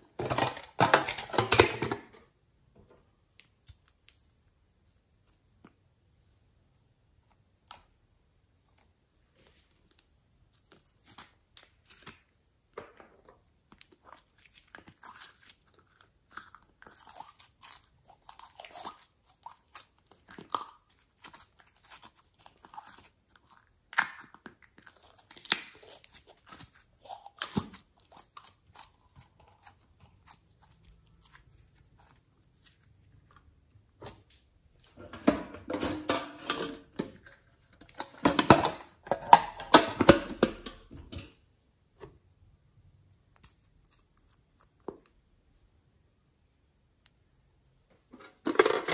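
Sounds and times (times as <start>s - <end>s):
slime crackling and squelching: 13.4s - 34.8s.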